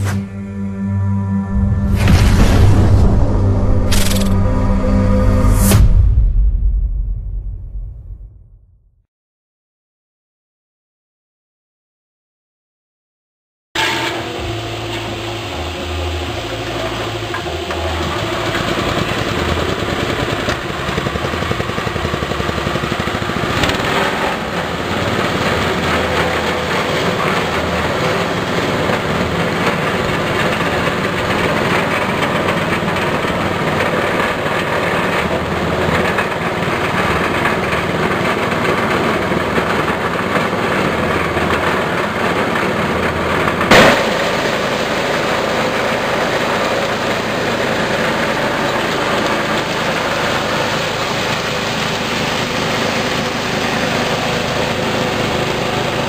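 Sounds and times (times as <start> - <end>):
small petrol engine running: 13.8 - 56.0.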